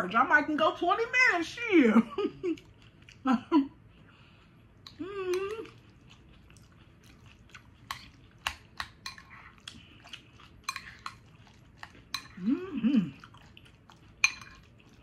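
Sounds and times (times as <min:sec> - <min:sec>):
person humming: 0:05.0 - 0:05.7, 0:12.4 - 0:13.2
fork scraping glass bowl: 0:10.7 - 0:11.2, 0:14.2 - 0:14.7.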